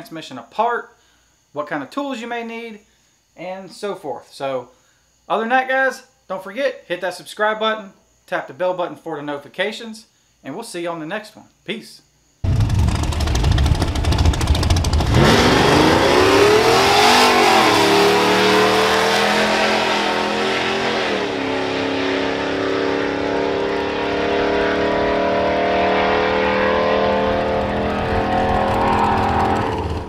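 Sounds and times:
truck engine at full throttle: 12.4s - 30.0s.

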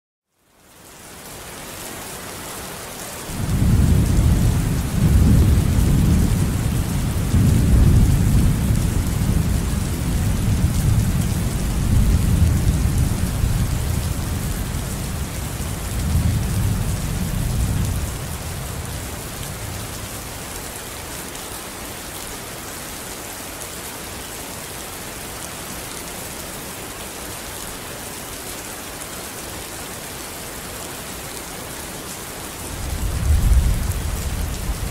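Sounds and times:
heavy rain hissing: 1.0s - 34.9s
low rumble of thunder: 3.3s - 20.2s, 32.7s - 34.9s.

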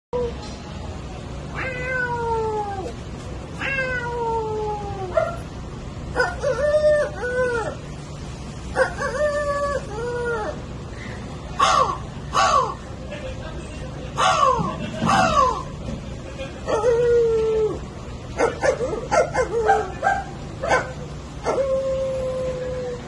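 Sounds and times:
cat meowing: 1.5s - 2.9s, 3.6s - 5.1s.

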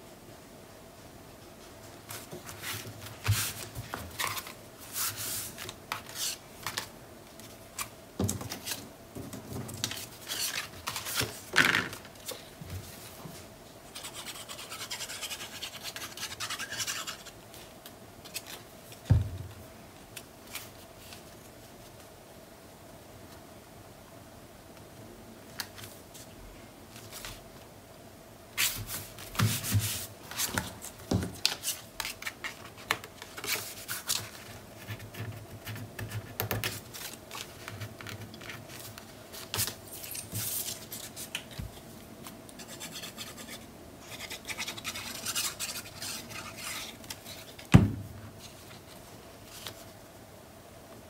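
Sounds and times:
paper rustling and scraping: 2.1s - 13.2s, 44.2s - 47.7s.

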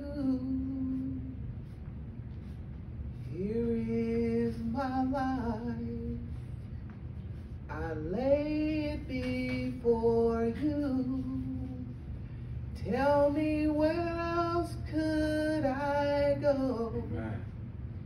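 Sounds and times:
woman singing a hymn: 0.0s - 1.4s, 3.3s - 6.6s, 7.7s - 12.1s, 12.8s - 17.1s.

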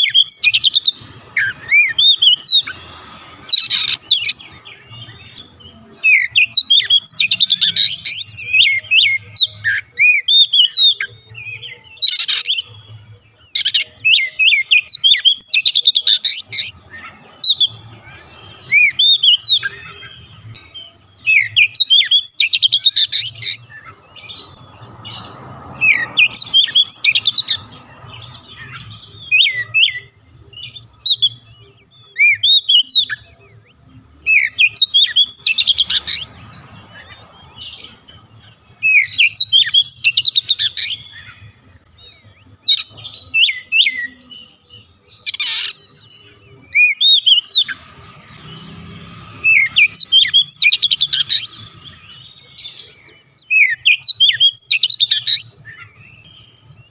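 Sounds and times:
bird singing: 0.0s - 56.9s.

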